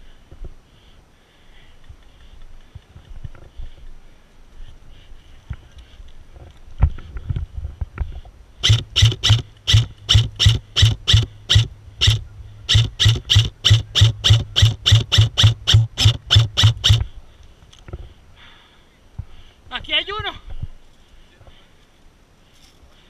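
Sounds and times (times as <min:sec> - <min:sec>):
airsoft rifle rapid shots: 0:08.6 - 0:17.1.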